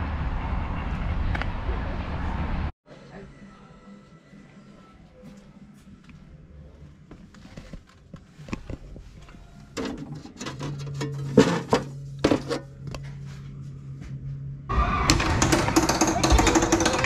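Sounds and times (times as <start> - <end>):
metal plates clattering: 9.8 - 12.7, 15.1 - 17.0.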